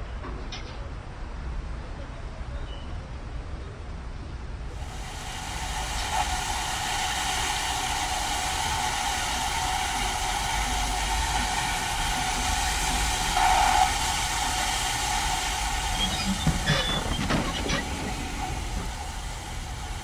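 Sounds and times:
steam train hissing: 0:04.7 - 0:20.0.

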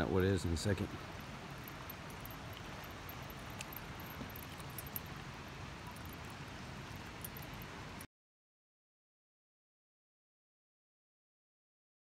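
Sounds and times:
faint outdoor hiss: 0:00.0 - 0:08.1.

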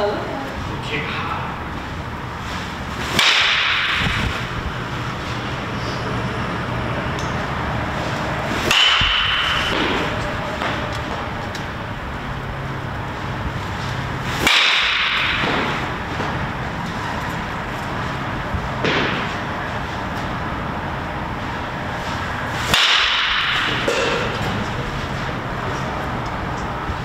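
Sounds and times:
bat cracking on ball: 0:03.0 - 0:04.4, 0:08.0 - 0:11.8, 0:13.9 - 0:16.5, 0:18.8 - 0:19.5, 0:22.6 - 0:24.6.

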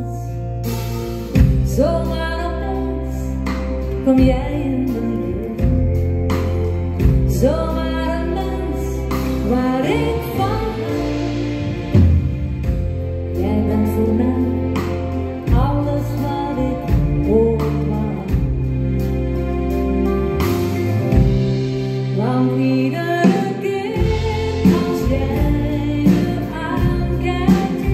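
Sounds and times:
bass and drums: 0:00.0 - 0:27.9
woman singing pop song: 0:01.6 - 0:11.4, 0:13.3 - 0:18.6, 0:22.1 - 0:27.9.

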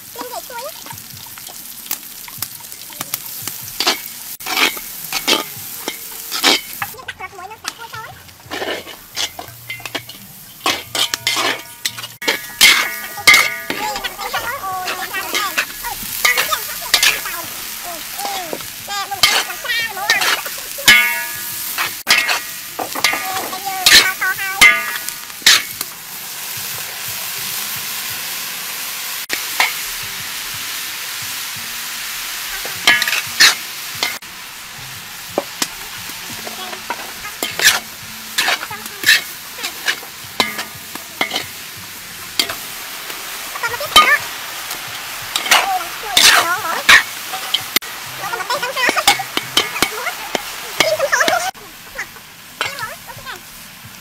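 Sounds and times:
chillies sizzling in a wok: 0:00.0 - 0:54.0
metal spatula scraping a wok: 0:03.3 - 0:07.0, 0:07.6 - 0:25.8, 0:32.5 - 0:34.2, 0:35.4 - 0:51.6.

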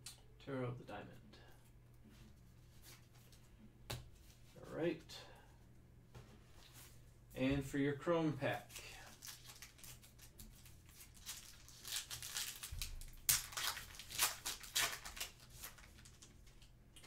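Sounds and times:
wrapper tearing and crinkling: 0:09.0 - 0:16.7.

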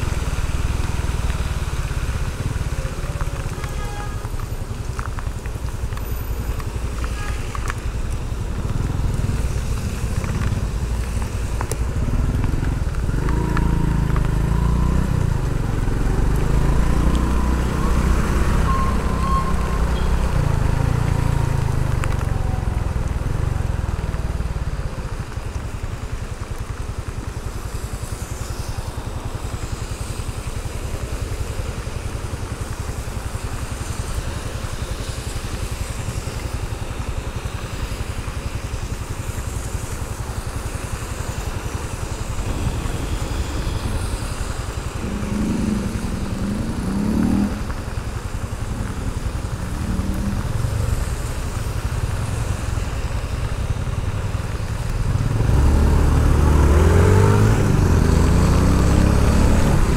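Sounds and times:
motorcycle engine revving: 0:42.0 - 0:52.6, 0:53.4 - 0:59.9.

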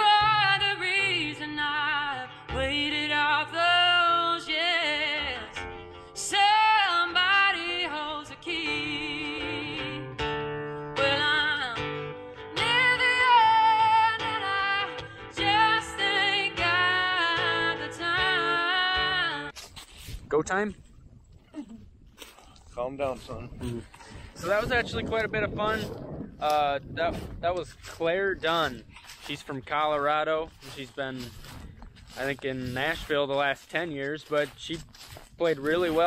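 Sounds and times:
woman singing with vibrato: 0:00.0 - 0:05.6, 0:06.2 - 0:10.1, 0:11.0 - 0:19.5
acoustic guitar: 0:00.0 - 0:19.6.

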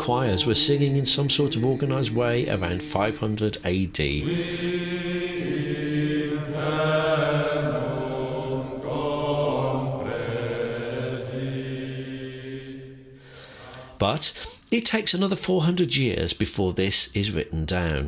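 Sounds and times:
men singing plainchant in unison: 0:04.1 - 0:13.0.

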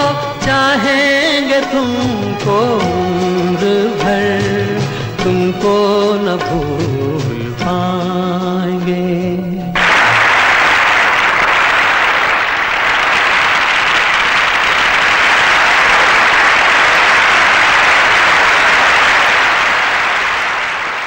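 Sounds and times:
television static hiss: 0:09.8 - 0:21.0.

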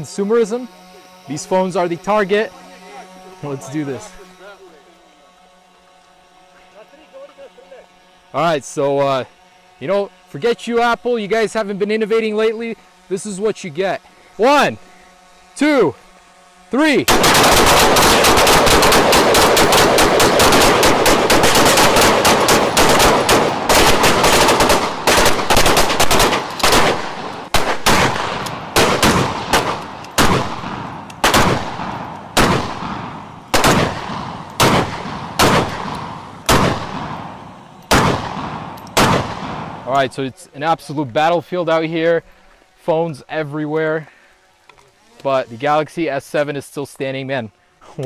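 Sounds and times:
rifle gunfire: 0:17.1 - 0:39.9.

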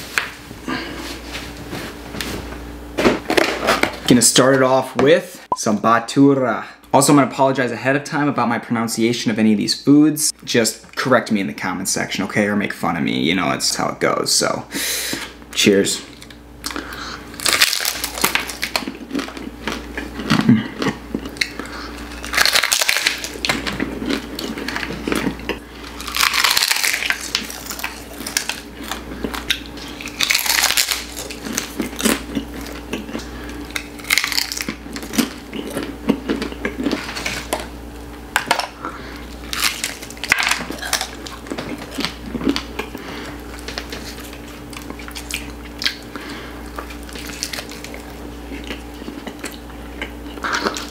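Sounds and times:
steady low hum: 0:00.0 - 0:50.9
biting and chewing bread: 0:16.2 - 0:37.8, 0:38.6 - 0:50.9.

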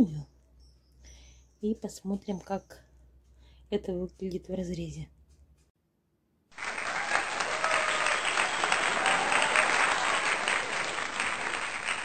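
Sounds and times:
crowd applauding: 0:06.5 - 0:12.0.

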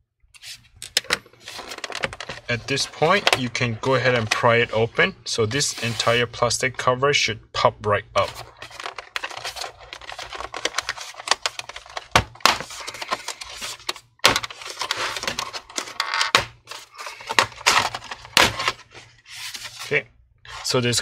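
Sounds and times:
plastic scraping: 0:01.2 - 0:04.8, 0:08.2 - 0:20.8.

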